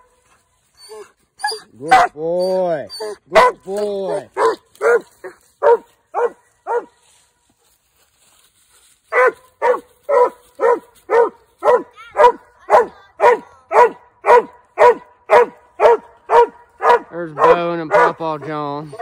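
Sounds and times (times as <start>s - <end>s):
dog barking: 1.8s - 2.2s, 3.3s - 7.0s, 9.1s - 19.0s.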